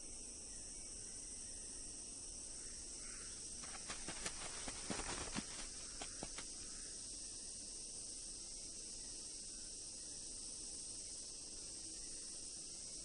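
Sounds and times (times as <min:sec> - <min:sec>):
high-pitched insect chorus: 0:00.0 - 0:13.0
sharp clicks and rustles: 0:03.6 - 0:06.5.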